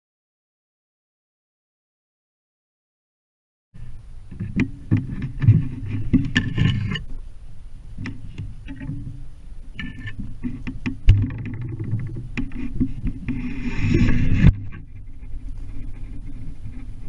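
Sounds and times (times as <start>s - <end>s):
twigs scraping: 8.0s - 17.0s.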